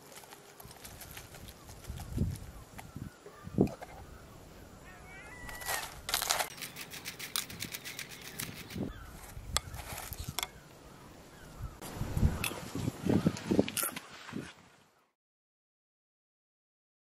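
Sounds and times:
high animal calls: 3.2 - 6.0.

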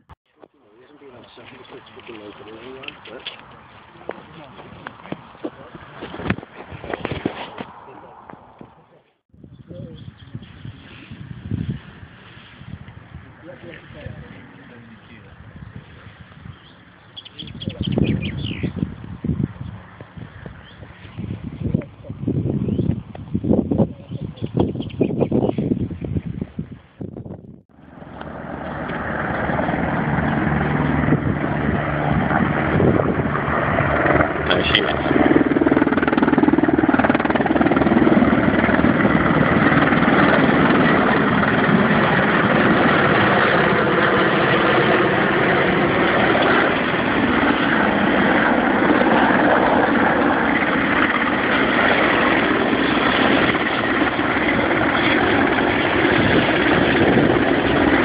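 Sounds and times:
helicopters flying overhead: 13.0 - 22.6, 27.7 - 58.0.

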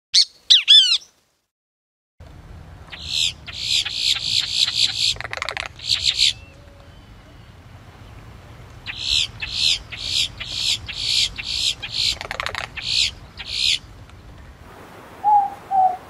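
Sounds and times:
bird harsh high calls: 0.2 - 1.2, 2.9 - 7.6, 8.8 - 13.9, 15.2 - 16.0
owl hooting: 2.9 - 7.0, 8.9 - 13.8, 15.2 - 16.0.

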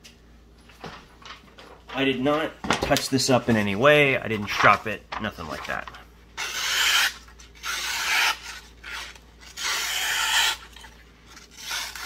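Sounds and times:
knife slicing paper: 6.4 - 12.0.

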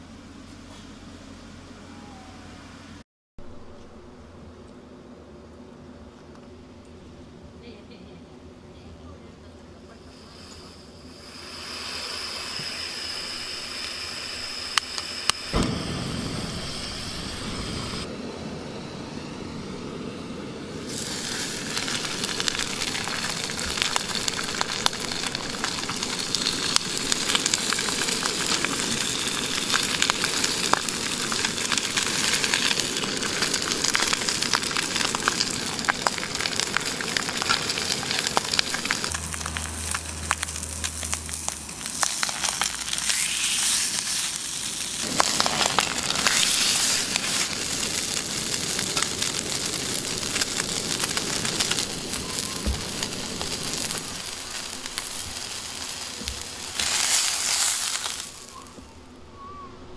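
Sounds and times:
fish sizzling in a frying pan: 10.1 - 16.8, 20.8 - 58.8.

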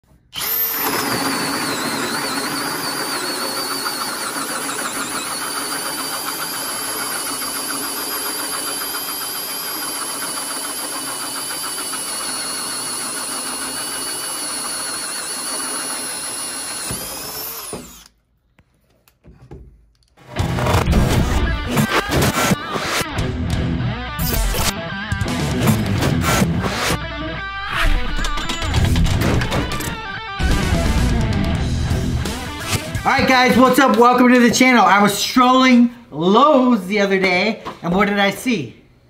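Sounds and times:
hole saw cutting wood: 0.4 - 18.1
cordless drill motor: 0.4 - 18.2.

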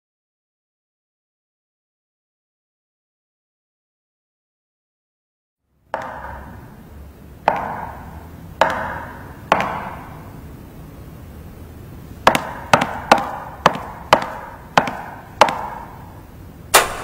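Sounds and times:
sharp struck hits ringing: 16.7 - 17.0.

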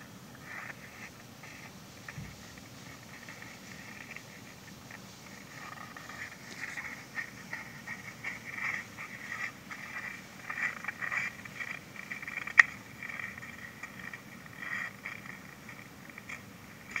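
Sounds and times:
underwater crackling and ticking: 0.3 - 17.0.

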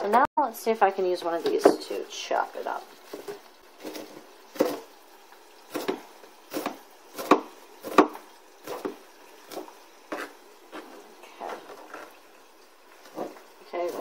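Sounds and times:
knife chopping on plastic board: 5.7 - 10.9.

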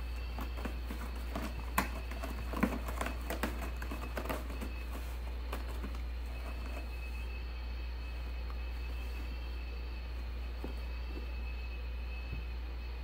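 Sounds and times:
cat claws scratching cardboard: 0.0 - 7.0.

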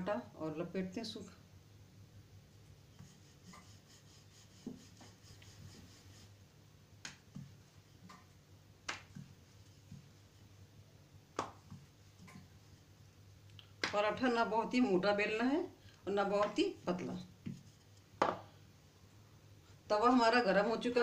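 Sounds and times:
rolling pin rubbing on dough: 2.4 - 6.5, 9.2 - 10.7, 16.4 - 18.1.

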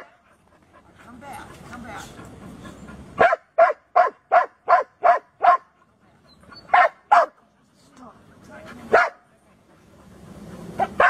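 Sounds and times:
dog barking: 3.2 - 5.8, 6.7 - 7.4, 8.9 - 9.2, 10.8 - 11.0.

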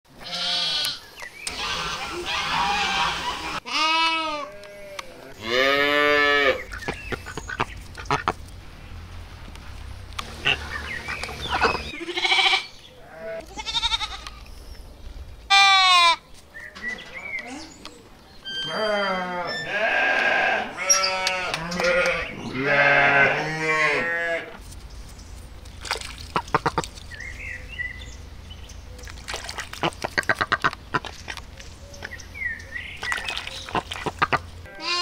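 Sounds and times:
lambs bleating: 0.2 - 1.0, 2.3 - 6.6, 11.9 - 14.4, 15.5 - 16.2, 18.6 - 24.6, 34.7 - 35.0
ducks quacking: 0.3 - 4.0, 5.4 - 8.4, 10.2 - 14.3, 26.2 - 26.9, 29.4 - 31.2, 33.1 - 35.0.

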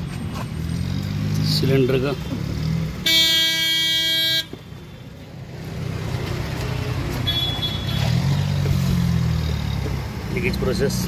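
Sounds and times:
vehicle horn: 3.0 - 4.5, 7.2 - 8.2.

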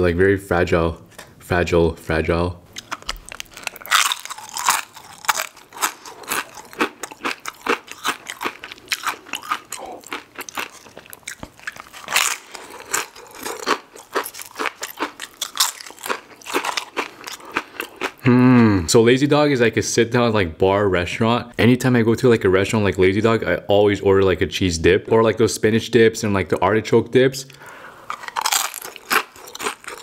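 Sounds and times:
crunching and chewing chips: 2.7 - 18.2, 27.5 - 30.0.

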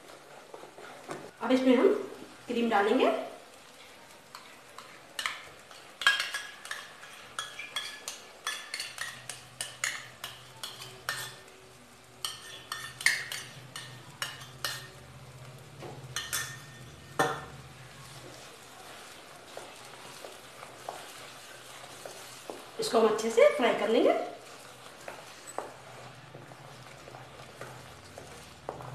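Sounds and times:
metal spoon clinking in steel bowl: 16.2 - 17.5.

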